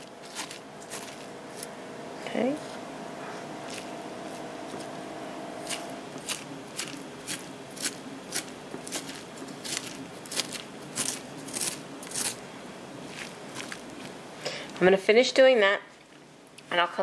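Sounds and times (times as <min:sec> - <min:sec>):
fork scraping squash strands: 0:00.0 - 0:01.7, 0:02.6 - 0:05.0, 0:05.6 - 0:12.4, 0:13.0 - 0:14.2.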